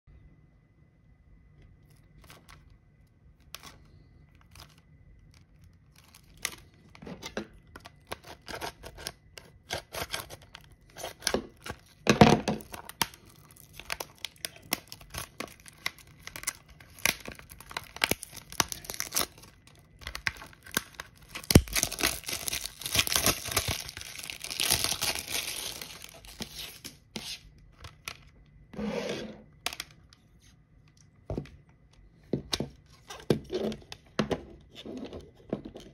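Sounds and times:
cellophane crinkling and tearing: 1.8 - 28.4.

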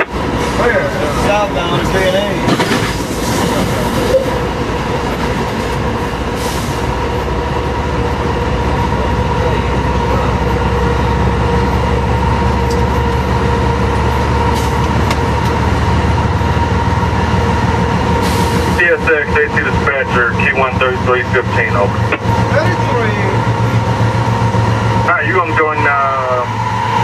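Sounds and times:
locomotive engine and rail rumble: 0.0 - 27.0
steady whine: 18.8 - 27.0.

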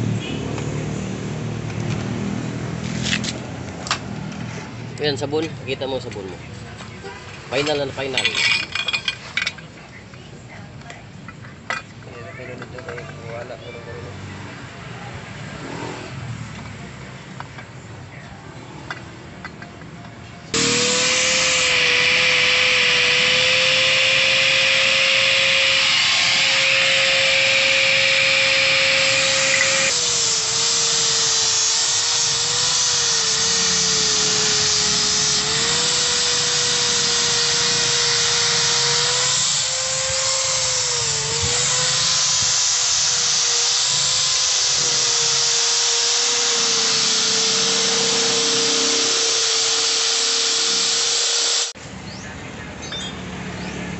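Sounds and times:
angle grinder whining: 20.5 - 51.8.

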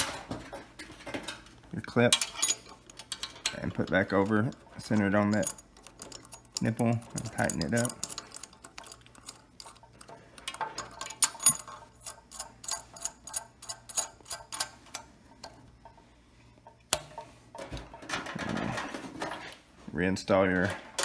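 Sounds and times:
metallic clicks of nut spinning: 2.1 - 16.0.

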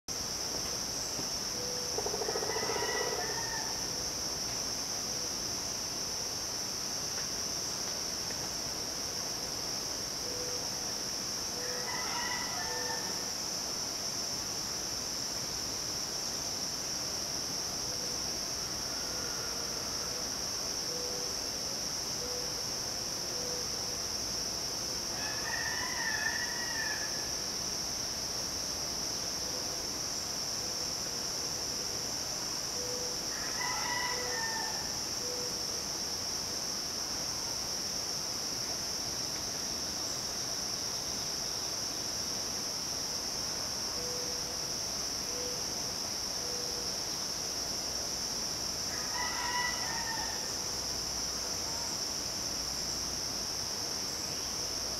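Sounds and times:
insects droning: 0.1 - 54.9
rooster crowing: 2.0 - 3.8, 11.6 - 13.2, 25.2 - 27.3, 33.3 - 35.0, 48.9 - 50.6.

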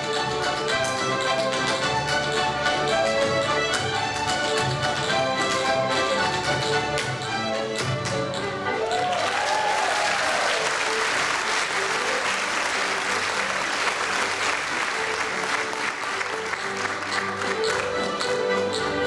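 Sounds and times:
fiddle music: 0.0 - 19.0
audience applauding: 8.8 - 18.8
person whooping: 9.0 - 10.6.

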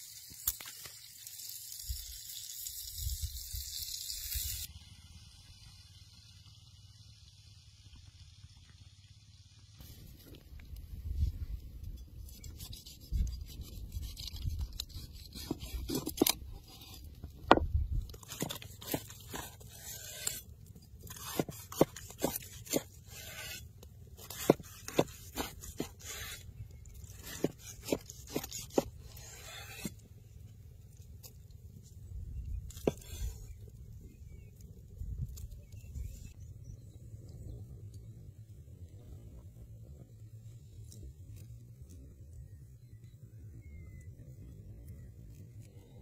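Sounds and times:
cleaver clicks and scrapes on board: 12.3 - 20.4, 21.0 - 23.6, 24.2 - 26.4, 27.0 - 30.0.

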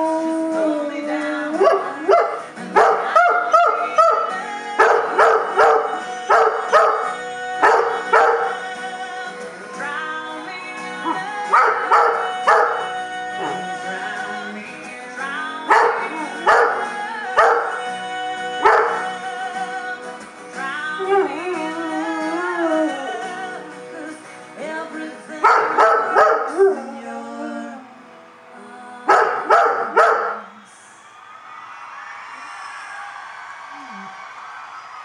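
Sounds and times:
country song from a speaker: 0.0 - 35.0
dog barking and howling: 1.6 - 8.7, 11.1 - 13.7, 15.7 - 17.8, 18.6 - 19.2, 21.0 - 21.6, 25.4 - 27.6, 29.1 - 30.6.

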